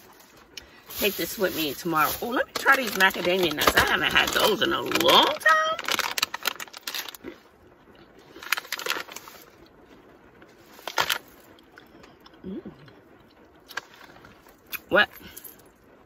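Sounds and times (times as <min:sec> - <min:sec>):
plastic pouch crinkling: 0:00.8 - 0:07.4, 0:08.3 - 0:09.6, 0:10.7 - 0:11.6.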